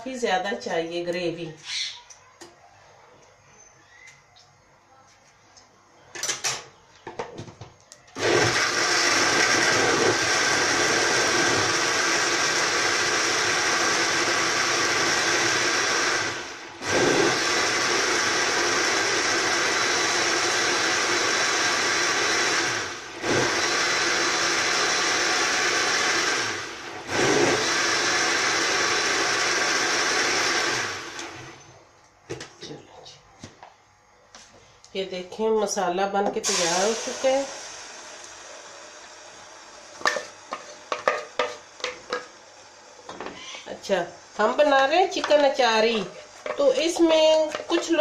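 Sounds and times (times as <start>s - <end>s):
blender motor grinding: 8.2s - 31.6s.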